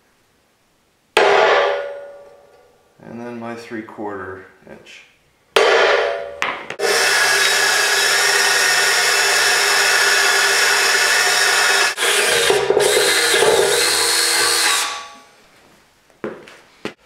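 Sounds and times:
drill boring through steel: 6.8 - 15.2.

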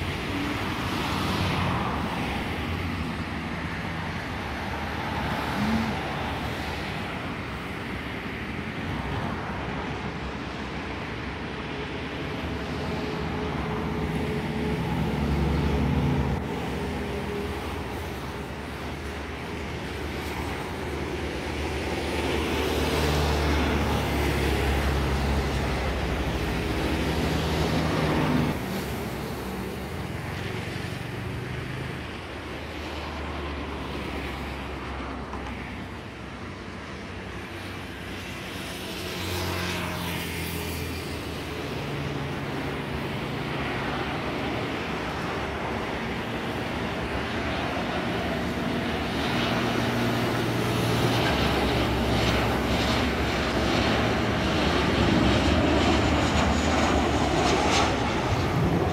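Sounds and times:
road traffic rumble: 0.0 - 58.9.

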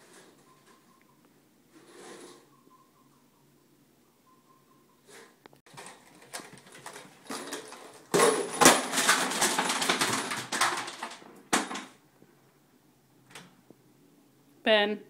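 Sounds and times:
metal screws and bolts clattering: 5.7 - 11.8.

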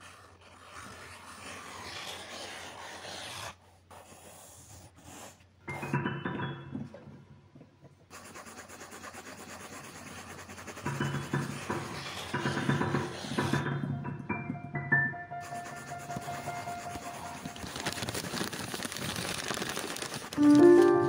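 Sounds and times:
fine crackling scratch: 0.0 - 4.4, 15.4 - 21.0
scratchy rubbing on paper: 0.0 - 6.0, 8.1 - 13.7, 15.4 - 21.0
rising musical notes: 20.4 - 21.0.

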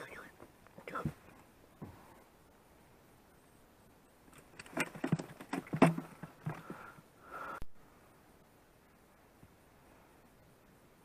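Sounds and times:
knocks and scrapes in boat: 4.6 - 6.8.

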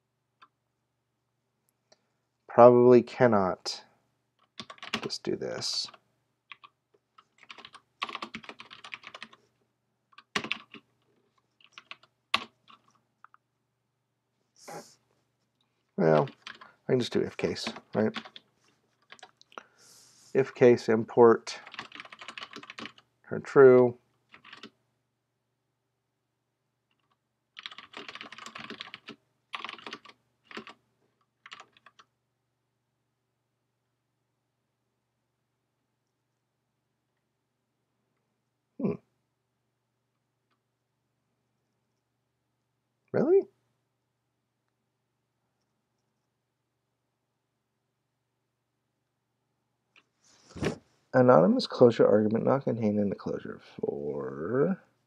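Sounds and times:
typing on keyboard: 4.4 - 5.1, 6.5 - 9.4, 10.1 - 11.0, 11.6 - 13.4, 16.0 - 16.7, 17.5 - 18.4, 19.0 - 19.4, 21.6 - 23.1, 24.3 - 24.8, 26.9 - 32.1.

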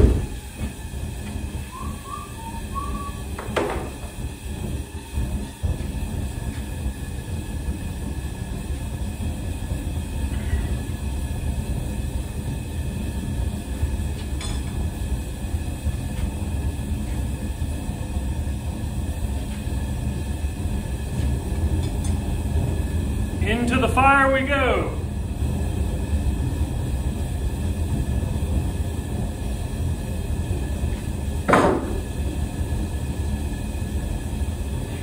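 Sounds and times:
propane forge burner rumbling: 0.0 - 35.0.

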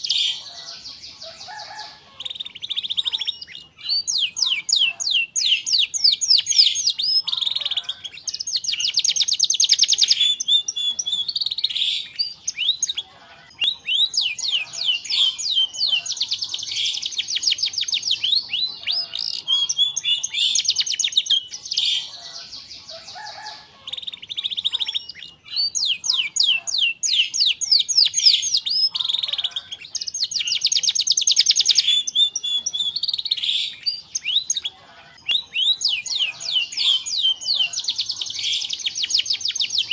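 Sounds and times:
canary singing: 0.0 - 39.9.

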